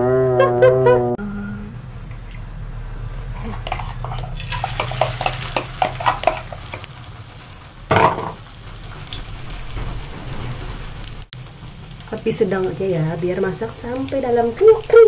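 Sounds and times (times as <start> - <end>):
batter sizzling in hot oil: 3.6 - 15.0.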